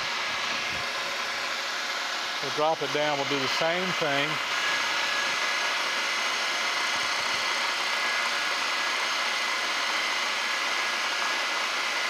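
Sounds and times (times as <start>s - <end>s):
milling machine spindle whine: 0.0s - 12.0s.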